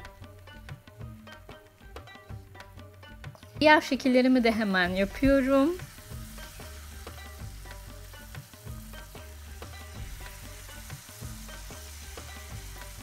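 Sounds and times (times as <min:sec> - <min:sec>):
soft background music: 0:00.0 - 0:13.0
batter sizzling in hot oil: 0:04.5 - 0:13.0.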